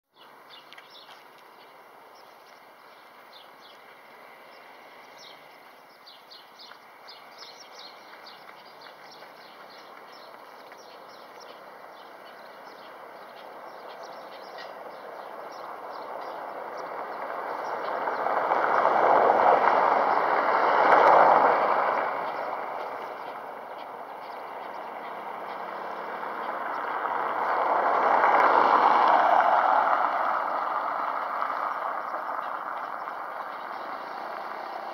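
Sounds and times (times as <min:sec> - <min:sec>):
motor vehicle passing: 0:00.2 - 0:34.9.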